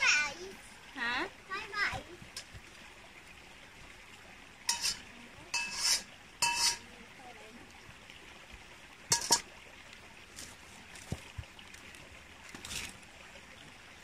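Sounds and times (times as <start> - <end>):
utensils clinking on metal dishes: 4.7 - 5.0, 5.6 - 6.8, 9.1 - 9.5.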